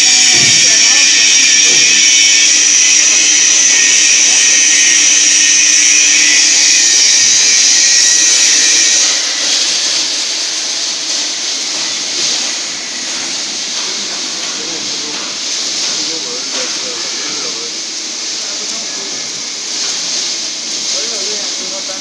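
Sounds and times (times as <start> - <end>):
electric motor whining: 0.0 - 13.1.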